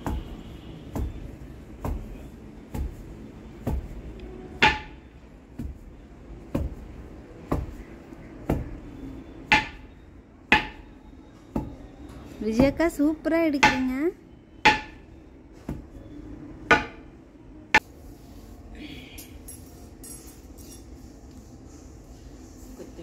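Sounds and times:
pestle pounding in a mortar: 0:00.0 - 0:04.0, 0:14.7 - 0:15.0.

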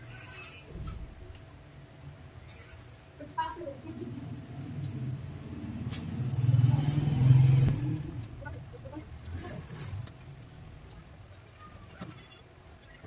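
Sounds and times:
vehicle engine passing: 0:04.2 - 0:10.5.

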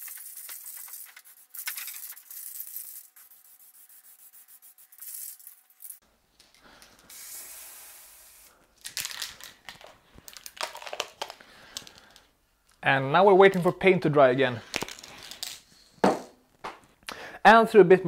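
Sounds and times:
spray can clicking and rattling: 0:00.0 - 0:03.4, 0:04.9 - 0:06.0, 0:07.1 - 0:12.0
aerosol spray can hissing: 0:00.0 - 0:05.6, 0:07.1 - 0:08.5.

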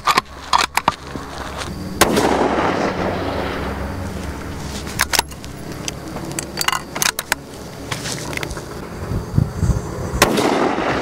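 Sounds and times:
rifle bolt metallic clicks: 0:04.9 - 0:07.4.

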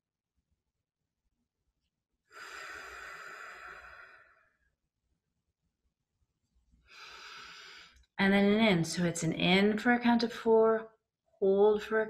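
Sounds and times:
woman breathing slowly: 0:02.3 - 0:04.7, 0:06.8 - 0:08.1.

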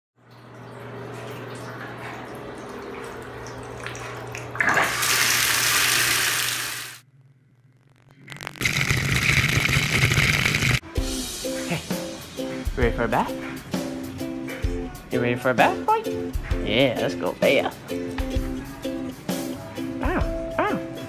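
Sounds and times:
water gushing into bathtub: 0:00.8 - 0:07.0, 0:08.5 - 0:10.8.

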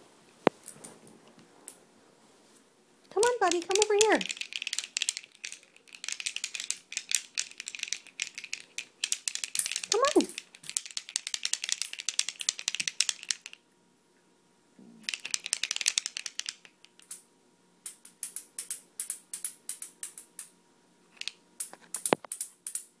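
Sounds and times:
plastic bead rattle shaking: 0:03.2 - 0:13.6, 0:15.0 - 0:17.2, 0:21.2 - 0:22.9.

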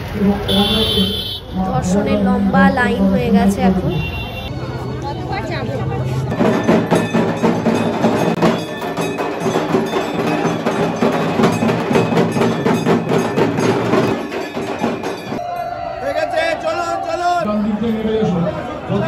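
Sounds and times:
rapid drum strokes: 0:06.3 - 0:15.4
ringing bell-like metal tones: 0:06.3 - 0:15.5.

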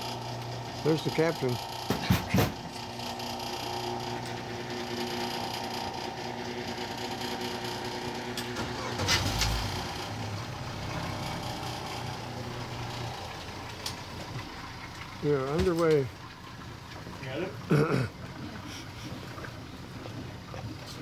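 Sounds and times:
boat motor running: 0:00.0 - 0:21.0
brief thump: 0:01.9 - 0:02.6.

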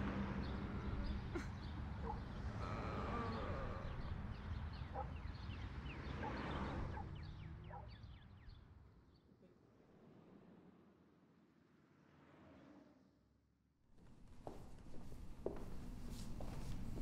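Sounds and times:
birds chirping: 0:00.2 - 0:09.2.

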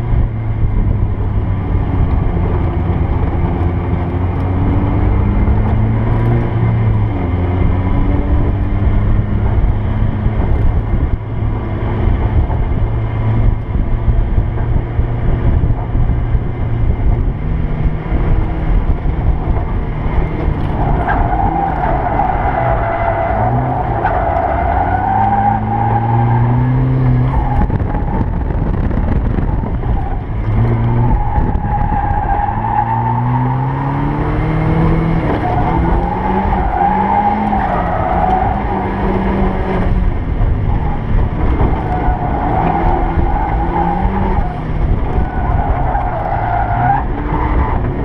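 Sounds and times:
car engine revving: 0:00.0 - 0:48.0
tires squealing: 0:18.6 - 0:48.0.

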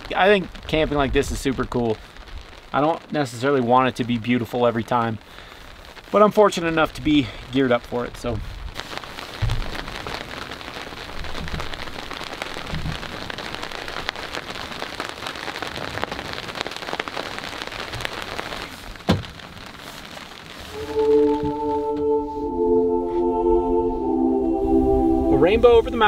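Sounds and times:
calm music with long tones: 0:20.7 - 0:26.0.

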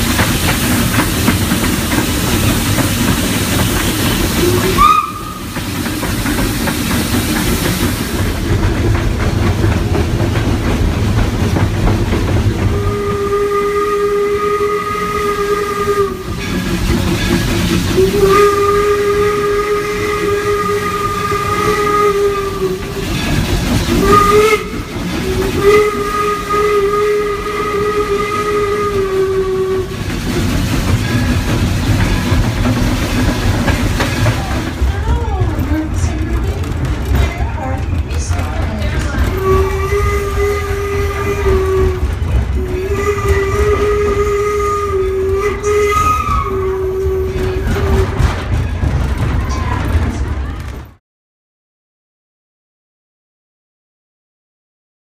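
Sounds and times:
steam hissing: 0:00.0 - 0:35.2
steam whistle blasts: 0:04.0 - 0:05.6, 0:12.7 - 0:16.4, 0:18.0 - 0:23.0, 0:23.9 - 0:30.0, 0:39.4 - 0:42.0, 0:42.6 - 0:48.2.

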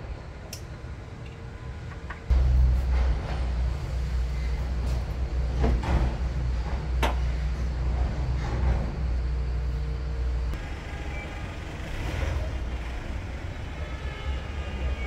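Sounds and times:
click: 0:00.5 - 0:01.4
vehicle engine rumbling: 0:01.2 - 0:15.0.

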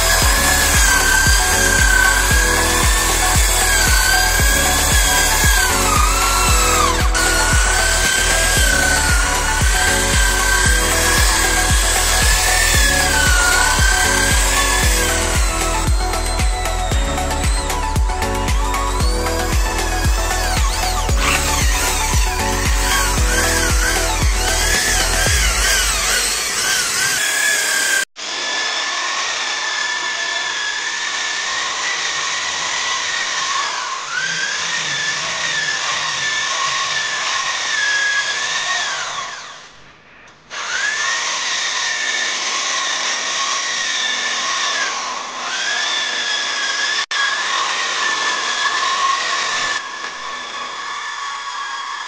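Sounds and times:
electric drill motor whine: 0:00.0 - 0:52.0.

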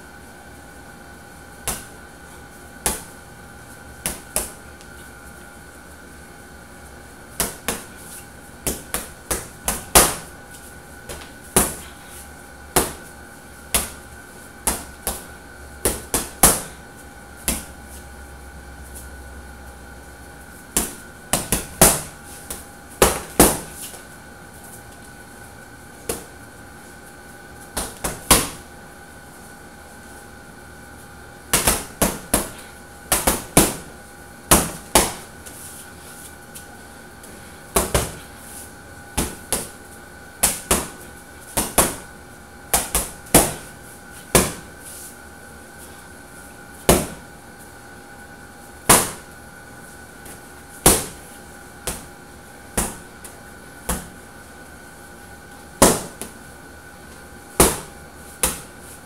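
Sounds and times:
faint steady hum: 0:00.0 - 0:59.0
gloves punching a heavy bag: 0:42.8 - 0:43.7.

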